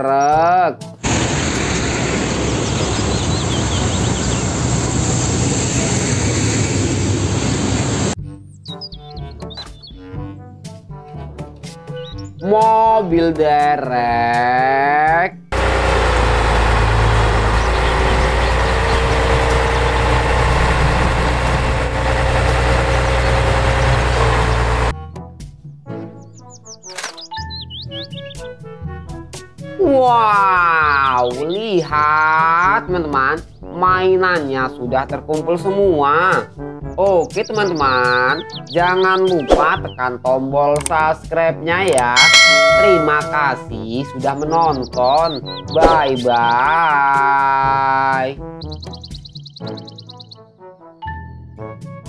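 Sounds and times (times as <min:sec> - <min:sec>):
truck diesel engine: 0:01.0 - 0:08.2, 0:15.6 - 0:24.9.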